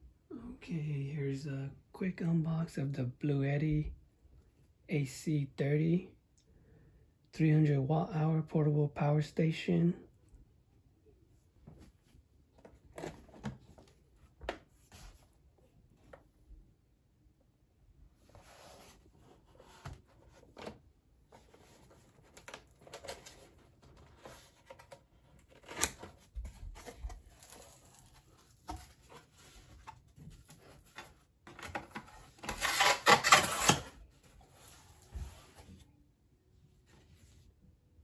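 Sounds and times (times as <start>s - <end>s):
hands handling cardboard box: 18.2s - 35.9s
cardboard scraping and tearing: 21.4s - 35.6s.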